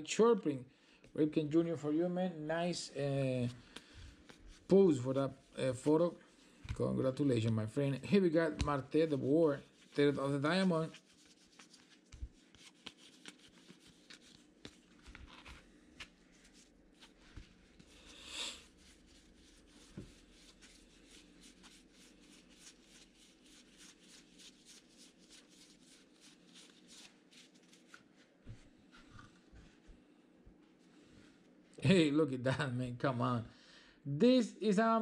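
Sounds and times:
cards being flipped by hand: 11.0 - 18.1, 21.4 - 28.3.

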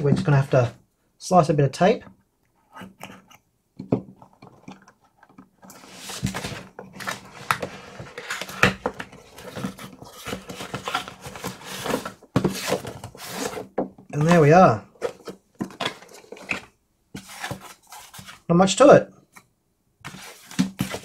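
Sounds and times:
cardboard scraping and rustling: 5.7 - 18.5, 20.0 - 21.0.

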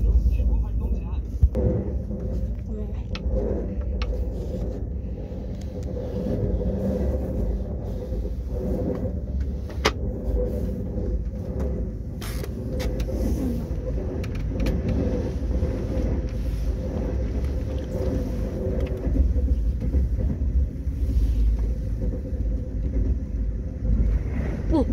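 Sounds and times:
vehicle engine low rumble: 0.0 - 24.9.

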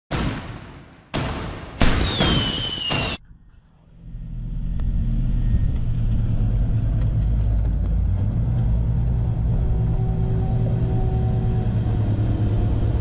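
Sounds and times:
whoosh with falling whistle: 1.8 - 3.2
diesel engine low rumble: 3.2 - 13.0.

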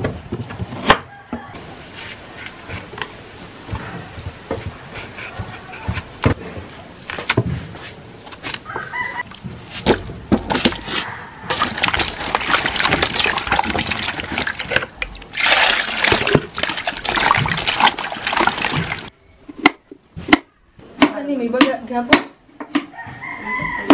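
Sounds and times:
hands splashing water in basin: 11.5 - 19.1.

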